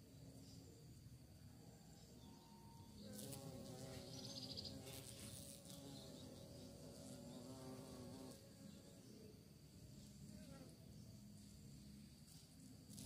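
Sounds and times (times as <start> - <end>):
bee buzzing in flight: 3.0 - 8.5, 12.2 - 13.0.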